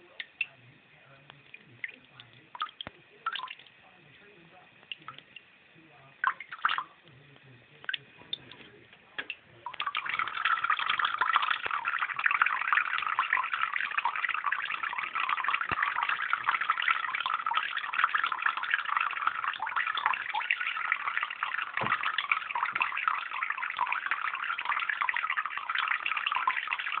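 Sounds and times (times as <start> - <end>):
water drips: 0.0 - 27.0
tap water running into sink: 6.2 - 6.9, 7.8 - 27.0.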